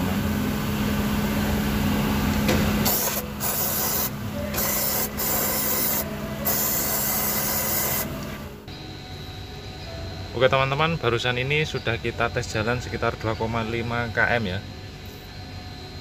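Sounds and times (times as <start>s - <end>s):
steady low hum: 0.0s - 16.0s
aerosol spray hissing: 2.9s - 8.1s.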